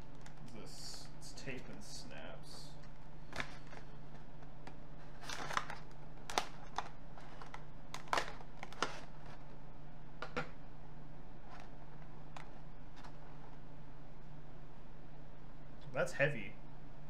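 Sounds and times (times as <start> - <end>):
steady low hum: 0.0 - 17.0
plastic packaging crinkling: 2.8 - 9.5.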